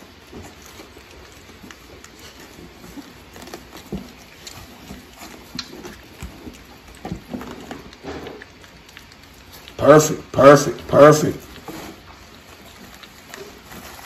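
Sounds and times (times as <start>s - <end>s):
puppies whimpering: 0.0s - 9.8s
small smacking sounds: 0.0s - 10.3s, 11.3s - 14.0s
puppies shuffling: 0.0s - 14.0s.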